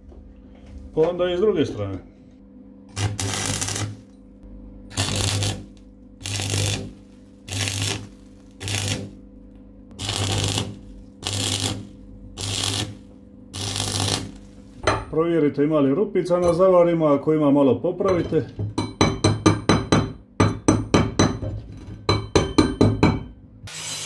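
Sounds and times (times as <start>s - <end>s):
steady low hum: 0.0s - 23.7s
arc welder crackling and buzzing: 2.8s - 14.9s, 23.6s - 24.0s.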